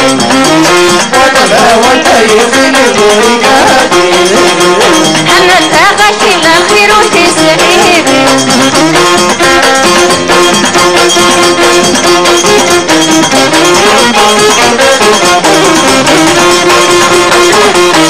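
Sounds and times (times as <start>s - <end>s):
rhythmic percussion: 0.0s - 18.0s
woman singing: 1.4s - 8.6s.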